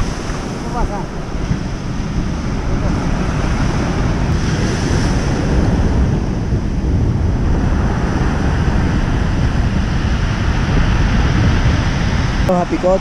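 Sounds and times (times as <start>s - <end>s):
surf breaking on pebble beach: 0.0s - 5.8s
wind buffeting microphone: 0.0s - 13.0s.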